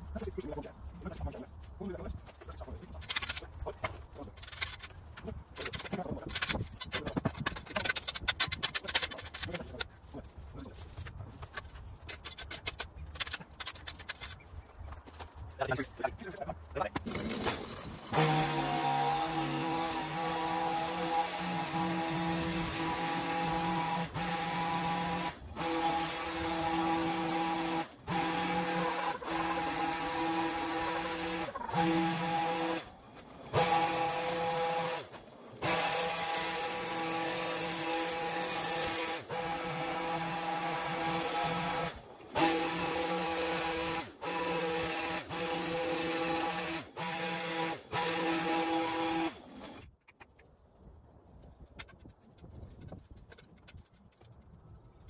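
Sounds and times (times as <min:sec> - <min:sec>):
electric motor whining: 0:17.0 - 0:49.8.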